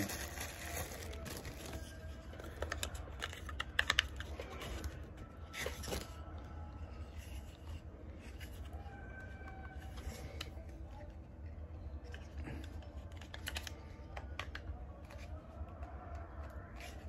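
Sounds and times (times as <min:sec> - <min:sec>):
plastic parts clicking and knocking: 0:00.0 - 0:06.2, 0:12.0 - 0:15.8.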